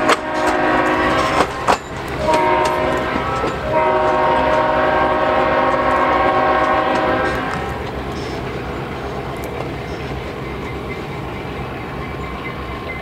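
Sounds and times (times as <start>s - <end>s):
locomotive air horn: 0.0s - 7.8s
railcar wheels clacking: 0.0s - 13.0s.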